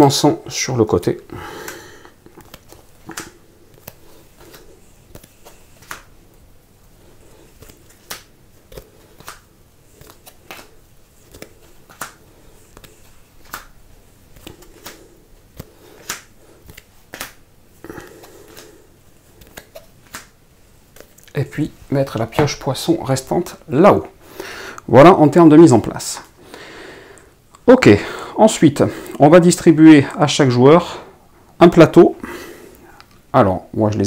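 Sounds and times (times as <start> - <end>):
cards clicking and slapping: 1.6 - 6.2, 7.4 - 21.4
cards sliding: 1.6 - 6.4, 7.0 - 21.3.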